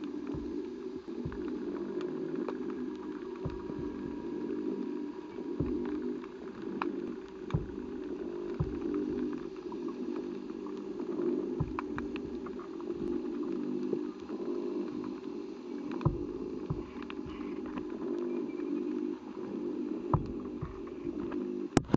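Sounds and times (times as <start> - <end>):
low pulsing underwater drone: 0.0 - 21.8
sharp knocks and clicks: 15.9 - 17.9, 20.1 - 21.0.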